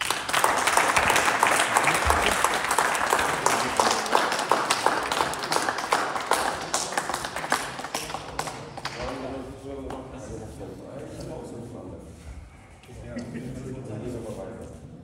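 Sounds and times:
crowd applauding: 0:00.0 - 0:09.4.

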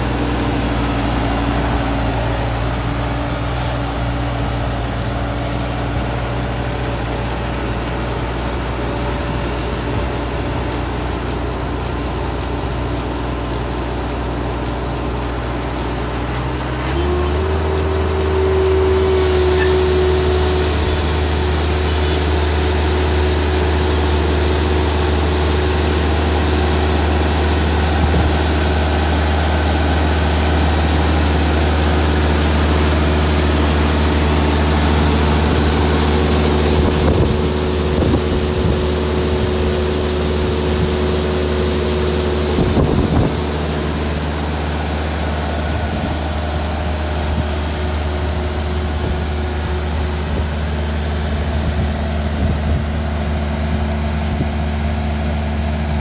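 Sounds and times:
loader engine running: 0:00.0 - 0:56.0.

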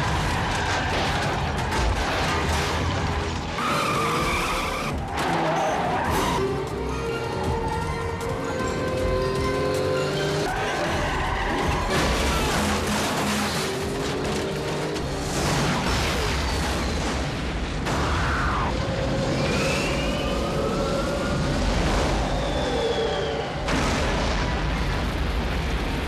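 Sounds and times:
explosions and fire rumble: 0:00.0 - 0:03.6, 0:11.2 - 0:26.0.

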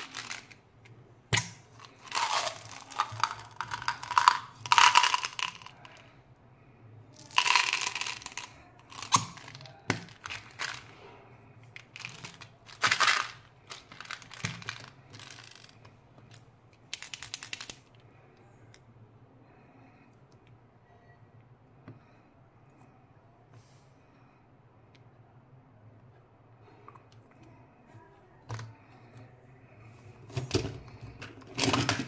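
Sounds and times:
candies rattling in plastic tub: 0:00.0 - 0:00.6, 0:01.8 - 0:06.0, 0:07.2 - 0:11.0, 0:11.8 - 0:15.8, 0:30.5 - 0:32.0.

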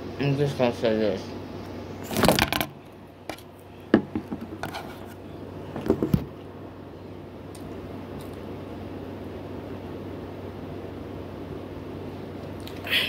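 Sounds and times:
phone taps and knocks: 0:04.0 - 0:04.5.

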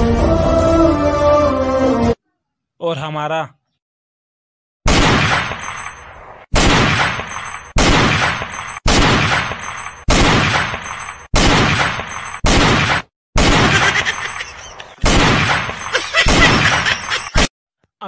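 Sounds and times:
gunshots: 0:04.9 - 0:14.2, 0:15.0 - 0:17.5.

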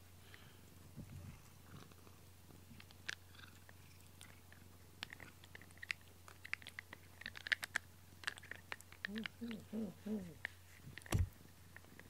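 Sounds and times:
cat chewing brush bristles: 0:02.7 - 0:09.4, 0:10.4 - 0:12.0.

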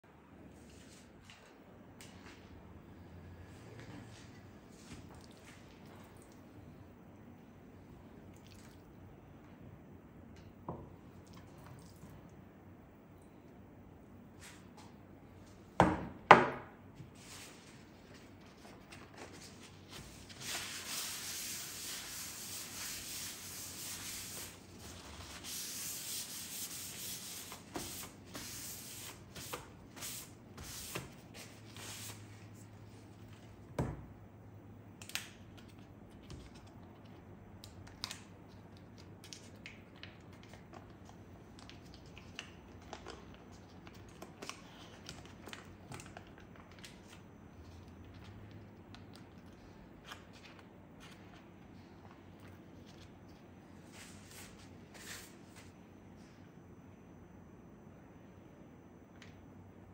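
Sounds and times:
paper towel rubbing cutting board: 0:20.0 - 0:32.2.

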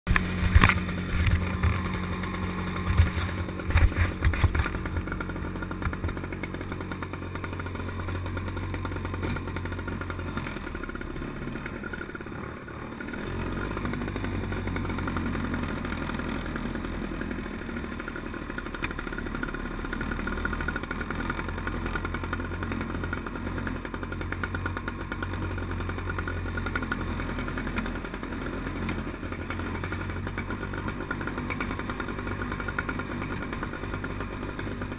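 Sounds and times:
loud knocks and clatter: 0:00.1 - 0:09.6
two-stroke engine running: 0:00.1 - 0:34.9.

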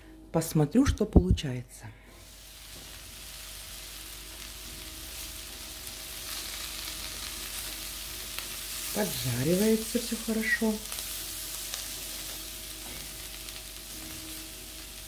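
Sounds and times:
vegetables sizzling in frying pan: 0:02.1 - 0:15.0.

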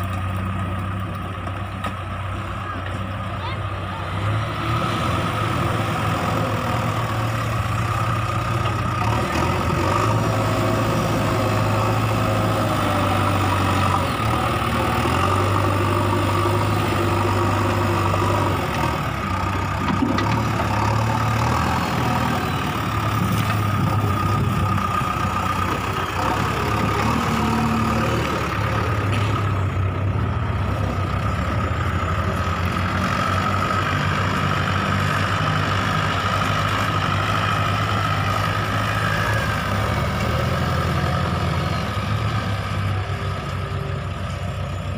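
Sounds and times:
diesel engine idling: 0:00.0 - 0:44.9
tractor engine under load: 0:00.0 - 0:44.9.

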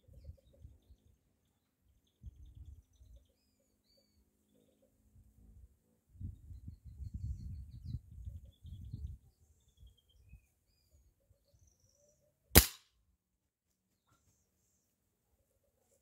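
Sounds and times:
air rifle shot: 0:12.6 - 0:12.8.

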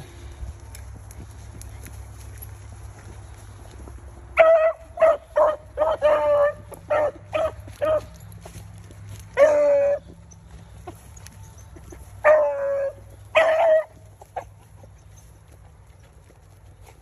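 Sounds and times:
dogs baying and barking: 0:00.0 - 0:17.0
dog yelping: 0:04.4 - 0:08.2, 0:09.4 - 0:10.2, 0:12.2 - 0:14.9.

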